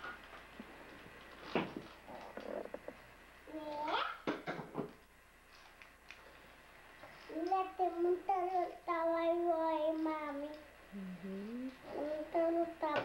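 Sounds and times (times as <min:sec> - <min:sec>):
child singing wordlessly: 0:07.3 - 0:10.7, 0:11.3 - 0:13.0.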